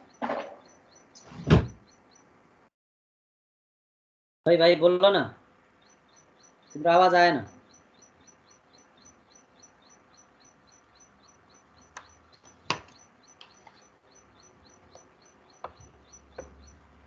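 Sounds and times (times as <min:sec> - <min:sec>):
faint high chirps: 0:05.8 - 0:17.0
scattered clicks: 0:11.8 - 0:13.9.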